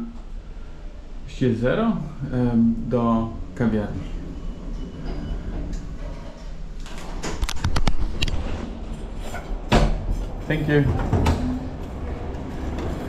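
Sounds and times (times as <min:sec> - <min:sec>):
lift humming: 0:00.0 - 0:07.2, 0:08.1 - 0:13.0
lift doors clicking and clunking: 0:04.1 - 0:13.0.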